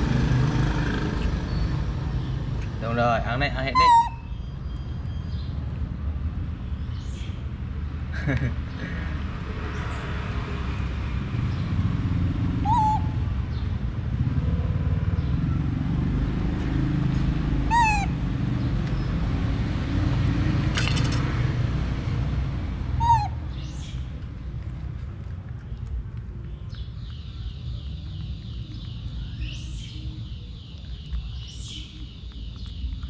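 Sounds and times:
young monkey calling: 0:03.4 - 0:04.4, 0:12.6 - 0:13.3, 0:17.6 - 0:18.2, 0:23.0 - 0:24.0.

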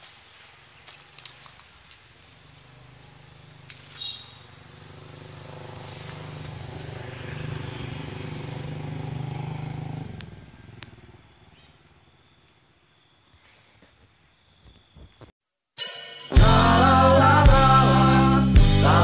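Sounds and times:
vehicle engine passing by: 0:02.3 - 0:12.2.

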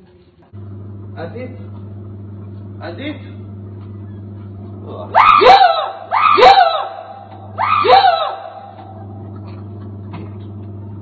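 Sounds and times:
steady low hum: 0:00.4 - 0:11.0
person shouting: 0:05.1 - 0:08.8.

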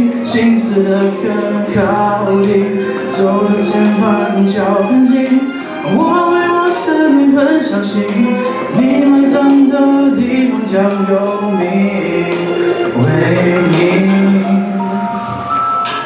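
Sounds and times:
man singing into microphone: 0:00.0 - 0:15.6
pop backing music with percussion: 0:00.0 - 0:16.0.

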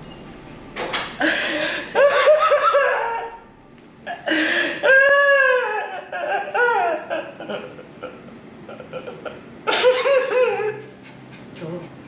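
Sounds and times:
adult wailing sobs: 0:04.1 - 0:08.2, 0:09.7 - 0:10.9.

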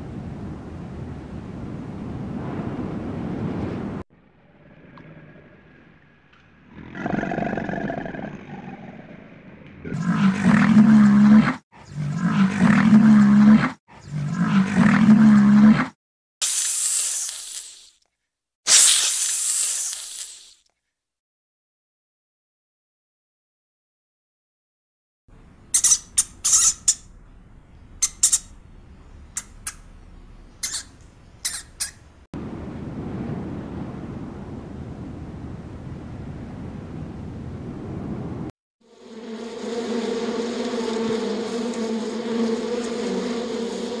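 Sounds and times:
hiss: 0:16.4 - 0:18.0, 0:18.7 - 0:20.6
rat squeaks: 0:25.7 - 0:27.1, 0:28.0 - 0:28.6, 0:29.4 - 0:29.9, 0:30.6 - 0:32.1
rhinoceros calling: 0:28.0 - 0:28.6, 0:30.5 - 0:32.1
low rushing noise: 0:37.7 - 0:44.0.

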